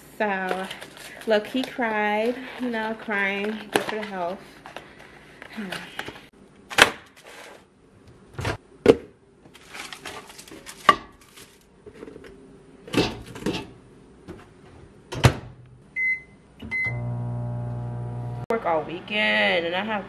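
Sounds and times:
microwave keypad beeps: 16.0s - 17.2s.

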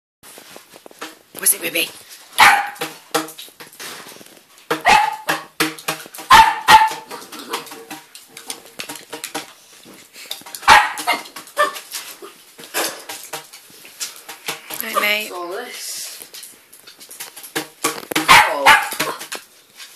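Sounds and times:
puppy barking: 2.4s - 2.8s, 4.8s - 5.3s, 6.3s - 7.1s, 10.6s - 11.8s, 18.2s - 19.2s.

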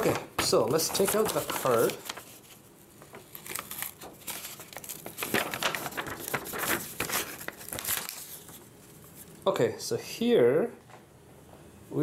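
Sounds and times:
paper rustling and crinkling: 0.0s - 9.4s.

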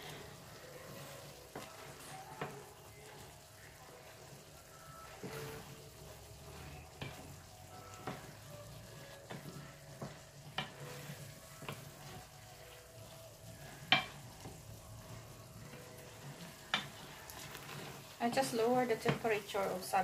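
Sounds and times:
faint sizzle in a pan: 0.0s - 20.0s
wooden spoon knocking a pan: 6.8s - 8.5s, 9.2s - 12.7s, 13.8s - 14.6s, 15.7s - 19.8s.

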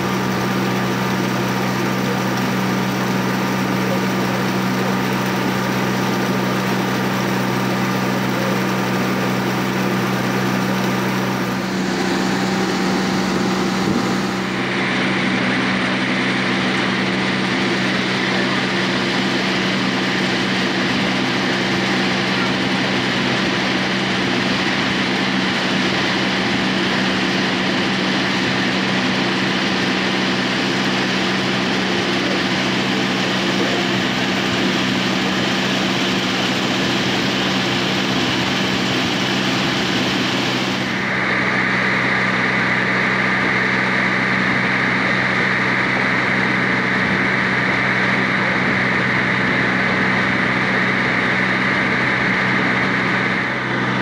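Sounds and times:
higher hum: 0.0s - 24.9s
boat engine humming: 0.0s - 54.0s
boat wake rushing: 0.0s - 54.0s.

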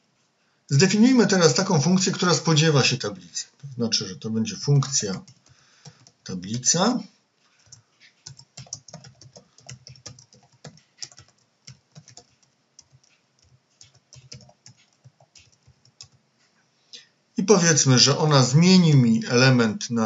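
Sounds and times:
keyboard key clicks: 8.2s - 16.2s.

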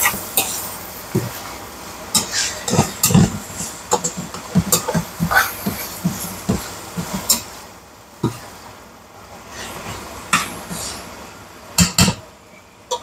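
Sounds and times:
utensil clacking on frying pan: 2.1s - 7.6s, 11.8s - 12.3s.

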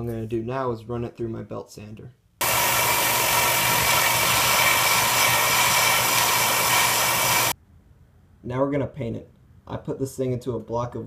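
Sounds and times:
belt sander grinding metal: 2.4s - 7.5s.

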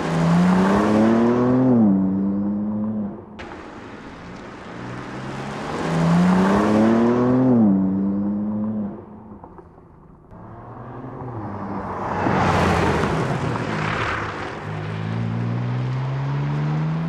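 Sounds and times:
car engine accelerating past: 4.2s - 9.1s, 10.3s - 17.0s.

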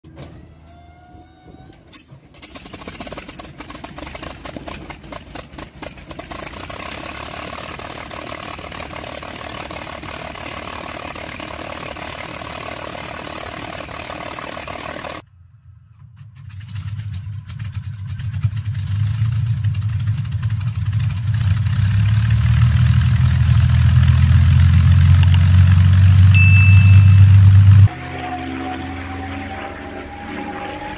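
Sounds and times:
aircraft engine drone: 6.2s - 15.2s, 22.8s - 30.9s
rising whine: 25.2s - 30.9s.

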